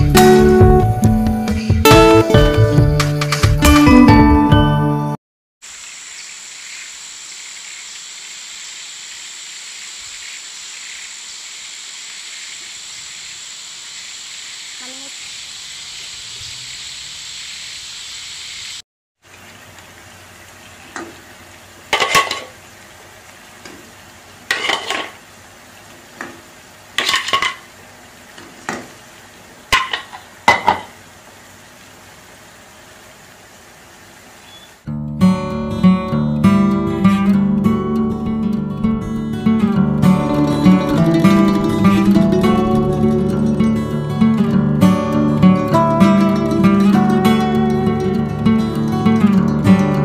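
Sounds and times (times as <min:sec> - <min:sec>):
water bubbling in a pan: 0:05.6 - 0:18.2, 0:19.2 - 0:34.5
steady high hiss: 0:05.6 - 0:27.1, 0:39.1 - 0:48.4.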